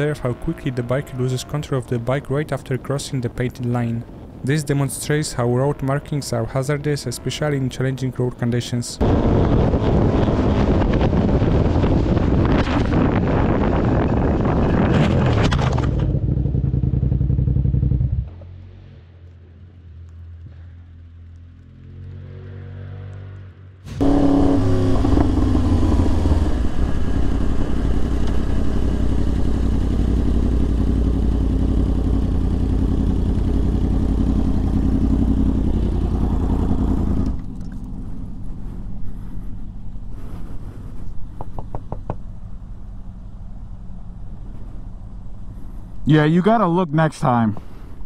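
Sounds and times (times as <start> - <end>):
wind rushing over microphone: 9.0 - 16.5
motorcycle engine accelerating: 9.0 - 45.9.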